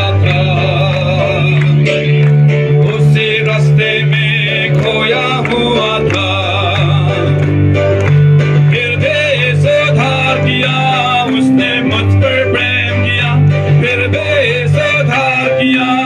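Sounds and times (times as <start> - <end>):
guitar: 0.0 - 16.0
held bass line: 0.0 - 16.0
singing: 8.7 - 16.0.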